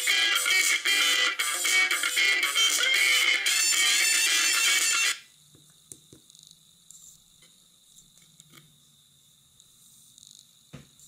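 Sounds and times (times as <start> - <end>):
music from small loudspeaker: 0.0 - 5.2.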